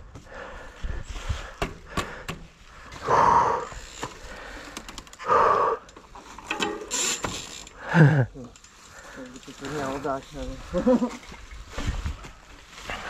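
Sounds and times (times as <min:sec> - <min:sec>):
bike knocks and rattles: 0:01.4 - 0:03.0, 0:03.8 - 0:05.2, 0:05.9 - 0:07.8
mountain bike rolling over leaves: 0:02.6 - 0:05.2, 0:06.0 - 0:13.0.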